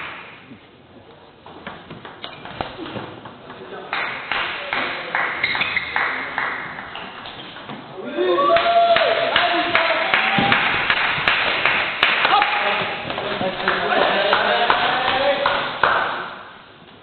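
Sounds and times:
voices in a hall: 2.5s - 16.8s.

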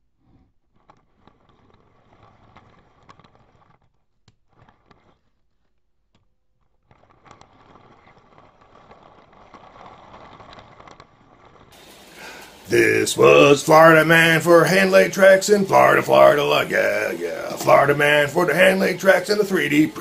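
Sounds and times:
plastic toy train cars rattling: 6.8s - 20.0s.

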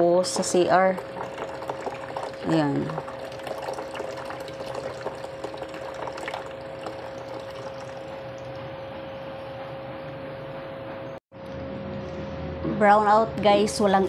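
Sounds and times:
tap water trickling into basin: 0.3s - 8.7s.

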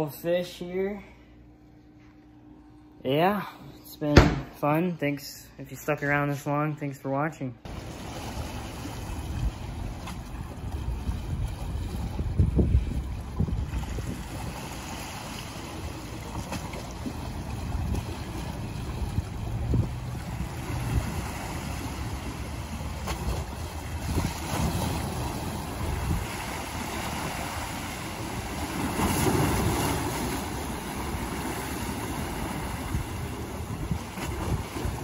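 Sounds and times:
waves splashing against rocks: 7.7s - 35.0s
wind buffeting the microphone: 9.1s - 15.1s, 17.5s - 22.3s, 23.2s - 29.8s, 32.5s - 35.0s.

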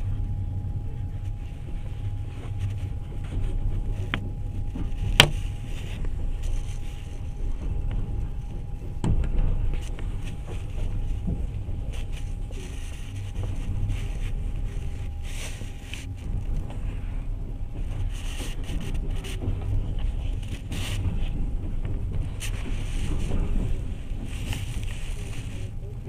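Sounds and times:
train clatters and rattles: 0.0s - 26.0s
train wheels rumbling on rails: 0.0s - 26.0s.

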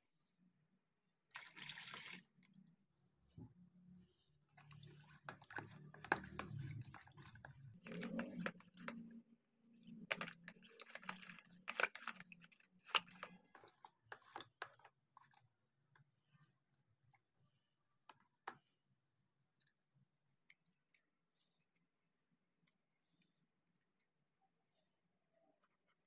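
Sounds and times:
clicks and taps: 4.6s - 9.2s
toothbrush scrubbing plastic: 4.6s - 15.4s.

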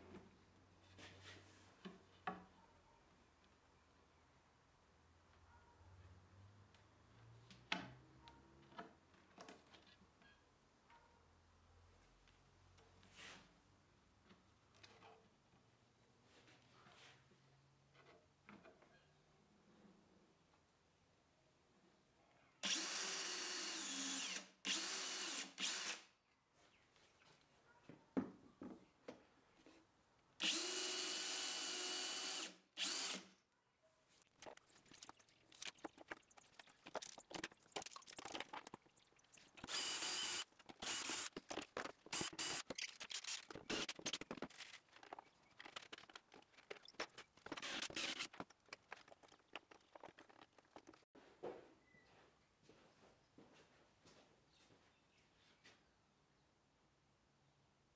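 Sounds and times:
cordless drill motor whine: 22.6s - 26.0s, 30.4s - 33.2s, 39.6s - 41.3s.

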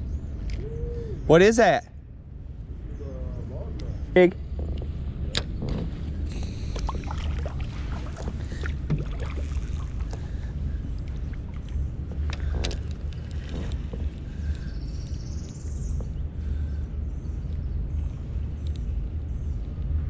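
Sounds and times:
faint rising whine: 0.0s - 20.0s
wind rumbling on microphone: 2.3s - 20.0s
water around kayak: 4.5s - 19.0s.

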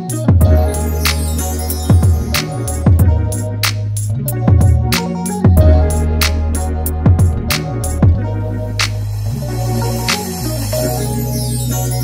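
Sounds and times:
deep bass line: 0.0s - 12.0s
electronic music: 0.0s - 12.0s
booming kick drums: 1.9s - 3.4s, 4.5s - 4.9s, 5.5s - 5.9s, 7.1s - 8.3s.

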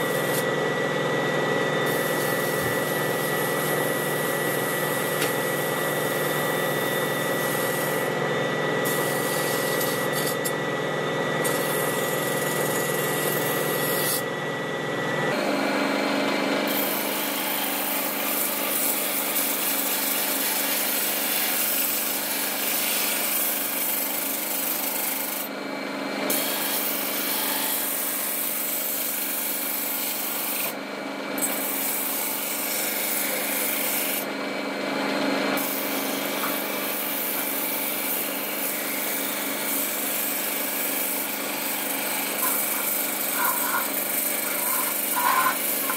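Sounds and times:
motor running: 0.0s - 10.6s, 35.6s - 45.9s
blade scraping on wire brush: 41.7s - 45.9s.

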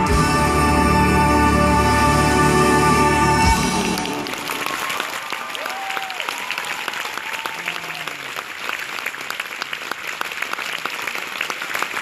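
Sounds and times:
audience applauding: 3.5s - 12.0s.

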